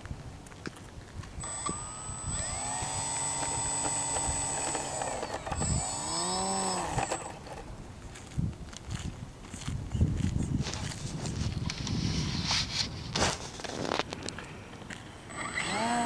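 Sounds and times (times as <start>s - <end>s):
model plane motor whining: 1.4s - 7.7s, 15.3s - 16.0s.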